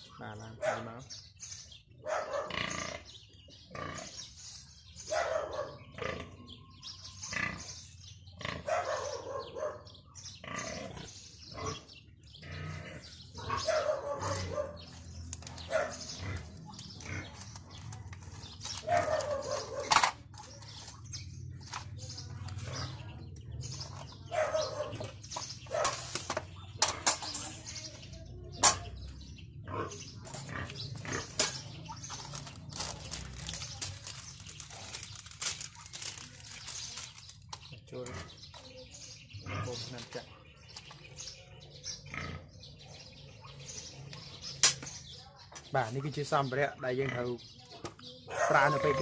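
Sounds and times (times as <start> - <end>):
pigs calling: 2.0 - 4.4, 5.5 - 17.9, 29.6 - 32.2, 39.4 - 40.1, 42.0 - 42.7, 48.3 - 49.0.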